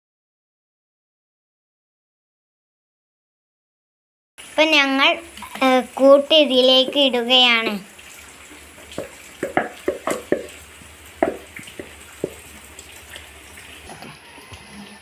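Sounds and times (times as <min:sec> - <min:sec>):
wet batter plopping into pot: 0:08.8 - 0:13.3
spoon knocking on rims: 0:08.9 - 0:10.6, 0:11.2 - 0:12.5.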